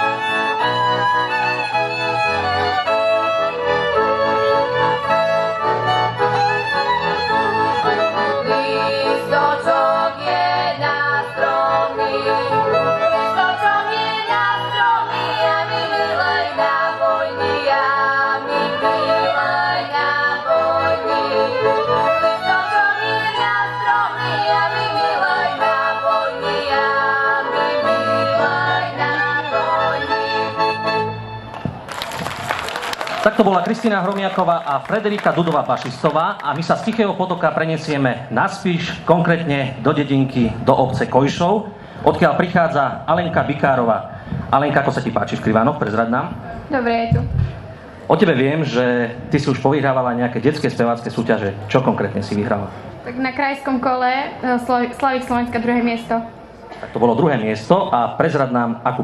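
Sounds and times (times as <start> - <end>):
instrumental folk accompaniment: 0.0 - 44.6
girls singing folk duet: 7.7 - 31.2.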